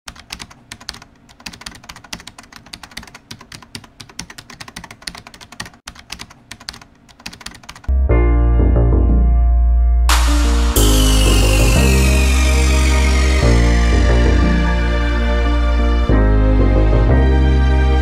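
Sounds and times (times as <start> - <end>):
keyboard typing clicks: 0.1 - 7.9
loud music with heavy bass: 10.1 - 17.6.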